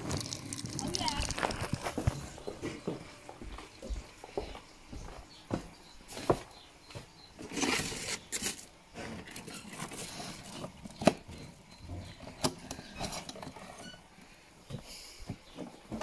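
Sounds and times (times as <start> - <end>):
plastic rustling: 0.0 - 2.5.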